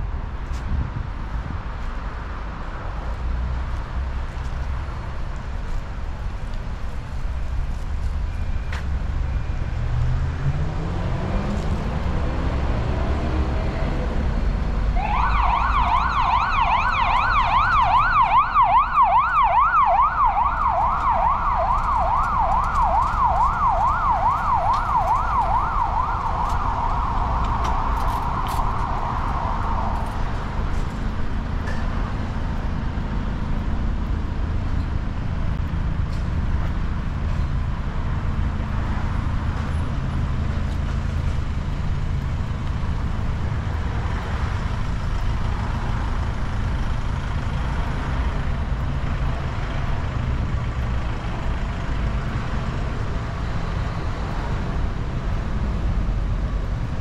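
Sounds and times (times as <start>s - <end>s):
street traffic: 0.0s - 57.0s
vehicle accelerating: 9.0s - 57.0s
emergency siren yelping: 15.0s - 30.1s.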